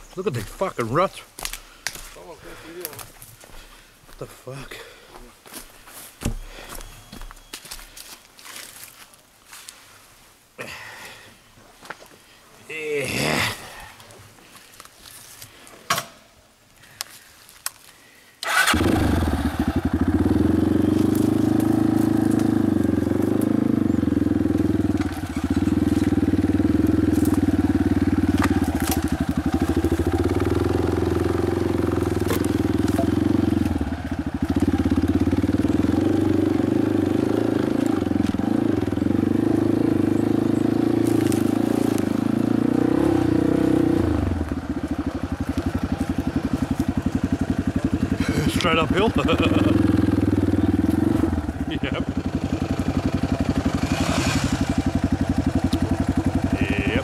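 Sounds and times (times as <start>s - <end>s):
vehicle engine running: 18.6s - 57.0s.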